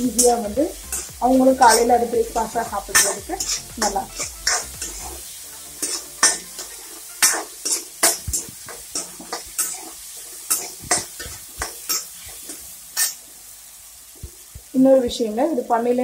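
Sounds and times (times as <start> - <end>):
onions sizzling in oil: 0.0 - 16.0
ladle scraping metal pan: 2.9 - 13.2.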